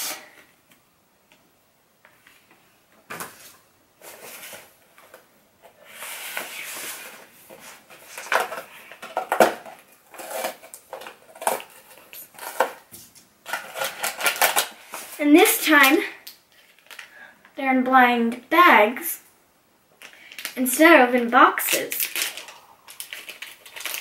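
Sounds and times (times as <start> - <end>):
cardboard and paper rustling: 3.1 - 15.3, 21.7 - 24.0.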